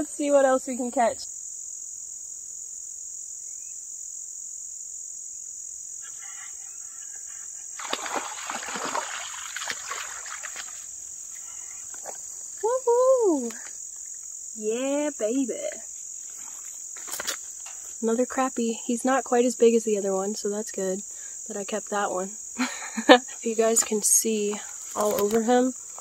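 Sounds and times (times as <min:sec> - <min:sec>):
crickets and insects chirping: 0:00.0 - 0:26.0
woman exclaiming: 0:12.6 - 0:13.7.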